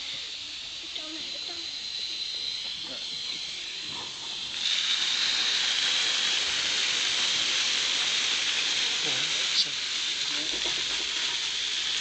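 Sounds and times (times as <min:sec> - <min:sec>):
water gushing onto ground: 0:02.7 - 0:12.0.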